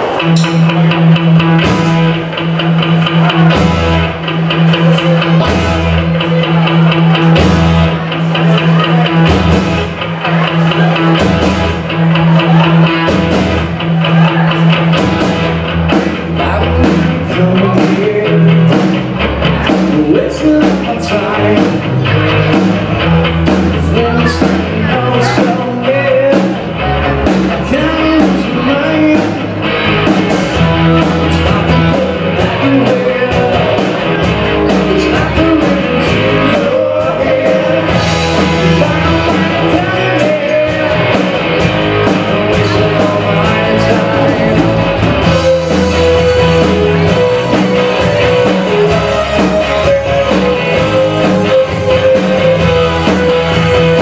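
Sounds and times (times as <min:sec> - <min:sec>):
live rock band playing: 0:00.0 - 0:54.0
lead singer vocal: 0:16.1 - 0:19.0, 0:19.7 - 0:22.0, 0:23.7 - 0:29.6, 0:30.6 - 0:41.3, 0:41.9 - 0:54.0.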